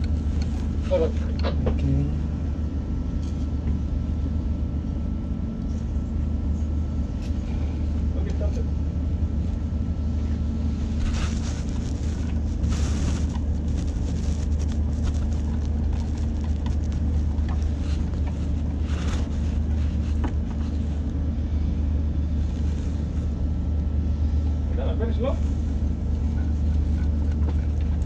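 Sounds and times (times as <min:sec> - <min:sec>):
low machinery drone: 0:00.0 - 0:28.0
scraping handling noises: 0:10.7 - 0:21.2.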